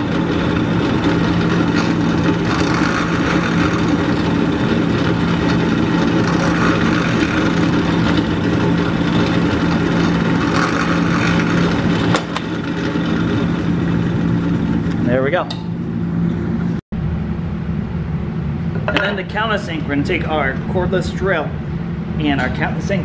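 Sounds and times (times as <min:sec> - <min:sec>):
drill press drilling wood: 0:00.0 - 0:14.8.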